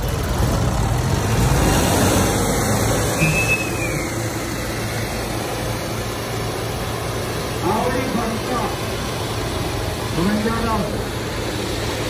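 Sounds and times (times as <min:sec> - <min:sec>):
tractor engines under full load: 0:00.0 - 0:12.0
high whistle: 0:03.1 - 0:04.3.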